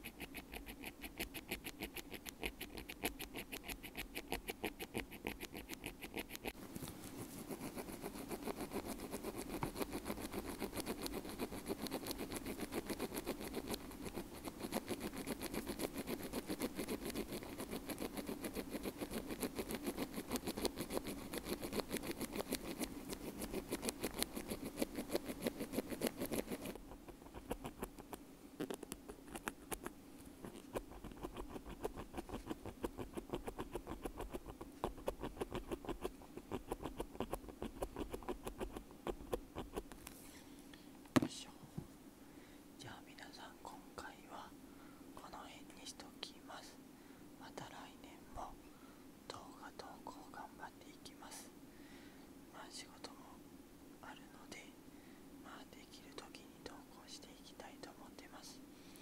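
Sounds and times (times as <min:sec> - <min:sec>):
ear pick scratching earbud grille: 0:00.0 - 0:40.2.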